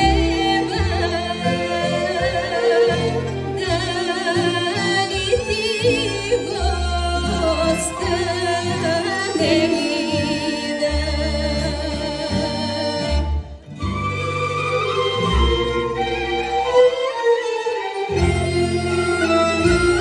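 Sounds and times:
woman singing folk song: 0.0s - 13.7s, 18.1s - 20.0s
folk instrument orchestra: 0.0s - 20.0s.

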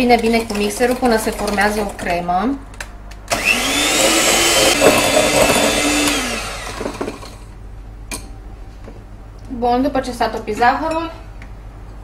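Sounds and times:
electric hand mixer motor: 3.3s - 7.4s.

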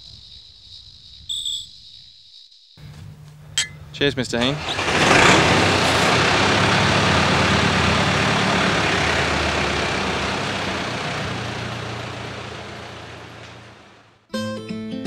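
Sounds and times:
engine idling: 2.8s - 14.2s
rushing noise: 4.4s - 14.1s.

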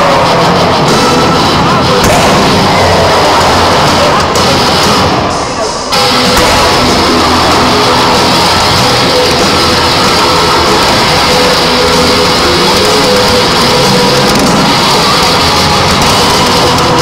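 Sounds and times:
loud rock music: 0.0s - 17.0s
fireworks crackling and banging: 2.0s - 5.5s.

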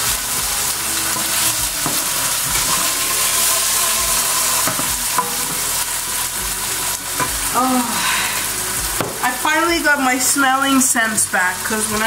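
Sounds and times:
meat sizzling in a frying pan: 0.0s - 12.0s
wooden spoon knocking on pan: 1.8s - 2.9s, 9.0s - 9.3s.

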